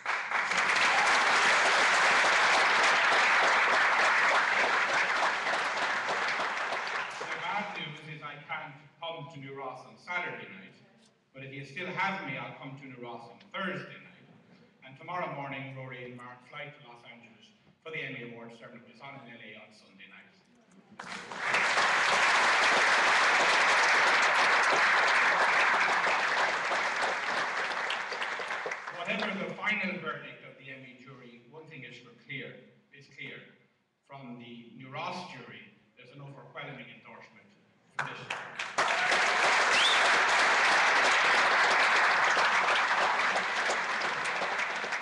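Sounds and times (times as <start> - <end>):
audience applauding: 0.0 - 7.8, 21.0 - 29.6, 38.0 - 45.0
rising and falling whistle: 39.7 - 40.2.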